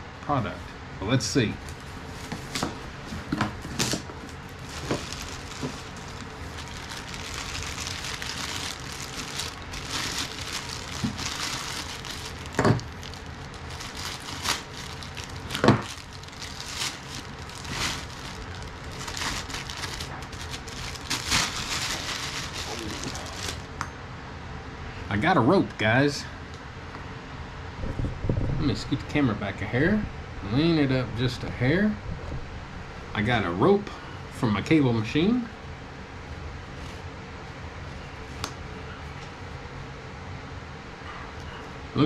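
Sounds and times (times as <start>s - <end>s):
plastic packaging crinkling: 3.6s - 23.7s.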